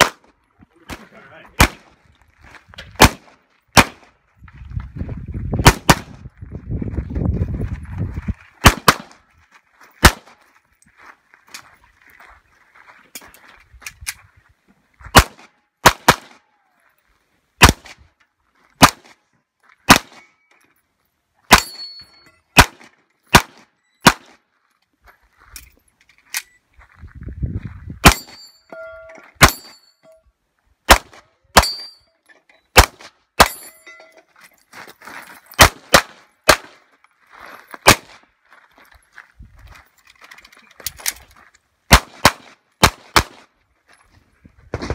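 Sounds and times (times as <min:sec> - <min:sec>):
handgun shots: 0:03.0 - 0:04.0, 0:08.6 - 0:09.2, 0:15.1 - 0:16.4, 0:19.9 - 0:20.2, 0:22.6 - 0:24.4, 0:28.0 - 0:28.4, 0:30.9 - 0:31.9, 0:35.6 - 0:36.8, 0:37.8 - 0:38.2
steel targets ringing: 0:21.5 - 0:22.5, 0:28.1 - 0:30.2, 0:31.6 - 0:32.2, 0:33.4 - 0:34.2.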